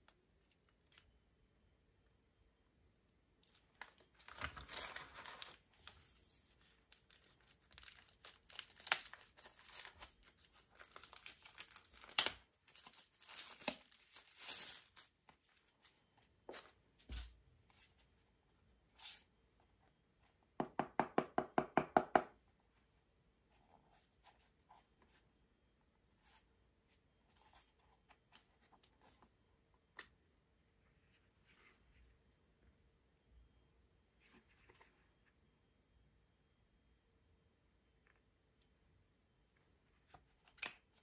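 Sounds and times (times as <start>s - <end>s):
packaging tearing and crinkling: 7.0s - 15.0s.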